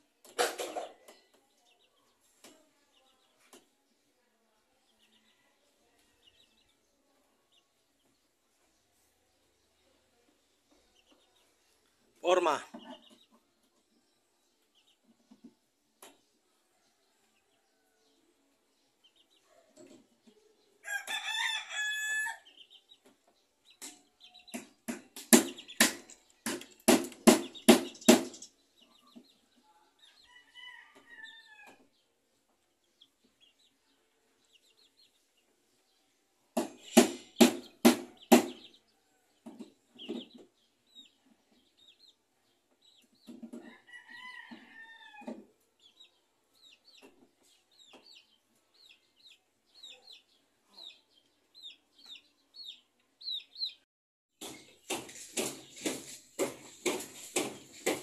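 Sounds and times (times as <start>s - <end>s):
rooster crowing: 20.8s - 22.4s
hammer nailing into timber: 24.6s - 28.4s, 36.6s - 38.6s.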